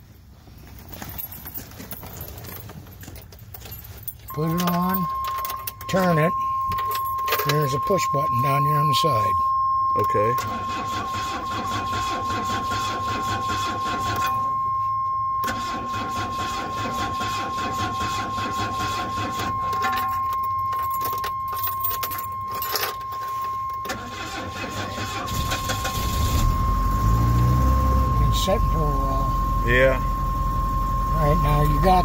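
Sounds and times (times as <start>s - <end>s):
high-pitched warning tone: 4.3s - 32.0s
engine cranking on starter: 10.4s - 14.4s, 15.4s - 19.6s, 23.8s - 29.4s.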